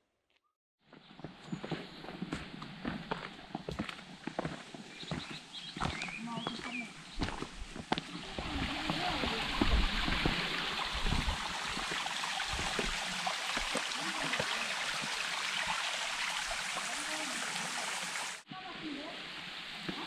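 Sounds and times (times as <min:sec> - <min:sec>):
stream flowing: 0:07.0 - 0:20.0.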